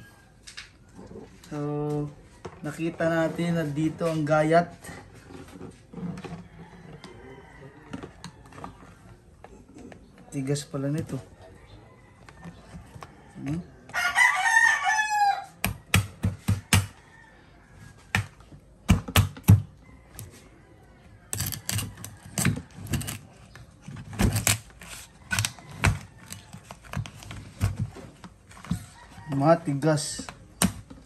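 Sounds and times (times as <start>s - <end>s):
rooster crowing: 6.2s - 9.0s, 11.4s - 18.1s, 28.7s - 30.0s.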